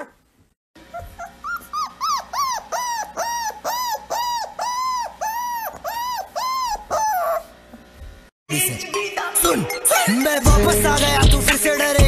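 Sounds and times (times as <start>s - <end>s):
puppy whimpering: 0.8s - 7.6s.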